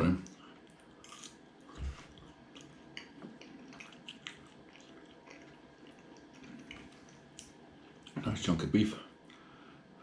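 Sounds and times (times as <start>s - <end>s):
wet chewing mouth clicks: 2.1s - 8.2s.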